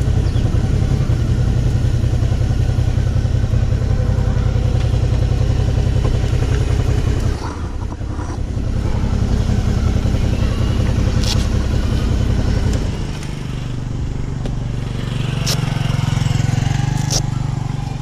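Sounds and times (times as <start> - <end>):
motorcycle engine idling: 0.0 - 18.0
sharp clicks: 15.4 - 15.7.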